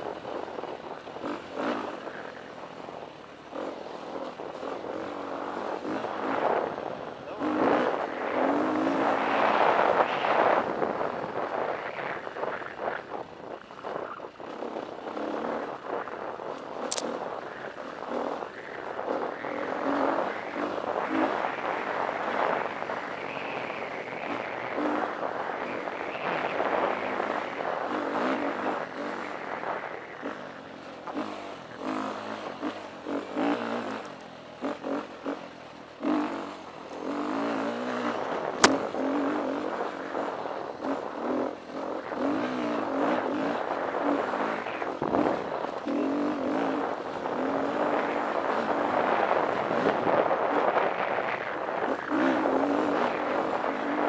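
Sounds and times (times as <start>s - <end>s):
dirt bike engine revving: 0.1s - 54.0s
sharp clicks: 16.8s - 17.2s.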